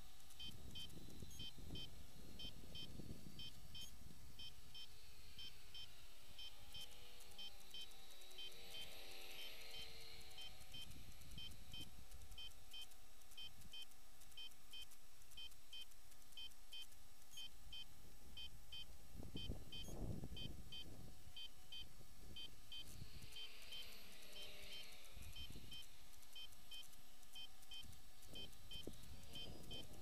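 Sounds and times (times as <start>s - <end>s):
short high electronic beeps: 0.4s - 30.0s
wind rumbling on microphone: 19.1s - 21.3s.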